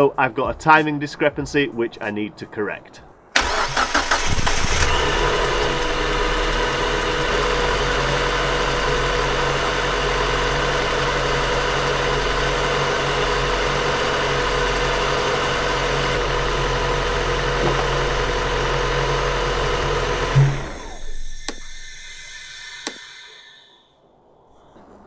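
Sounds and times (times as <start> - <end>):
car engine idling: 3.4 - 23.3
sharp clicks: 20.8 - 23.4.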